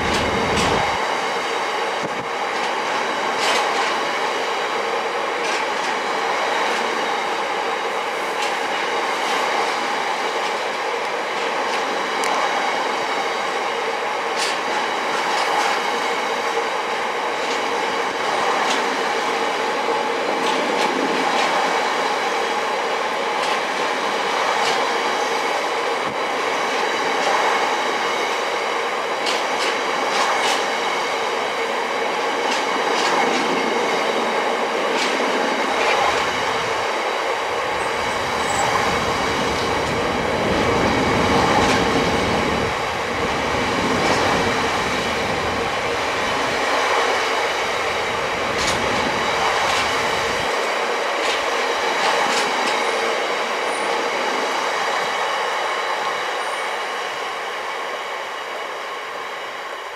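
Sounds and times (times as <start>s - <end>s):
train wheels rumbling on rail: 0.0s - 59.9s
wheels clicking over rail joints: 2.0s - 4.1s, 29.2s - 31.3s, 45.8s - 53.2s.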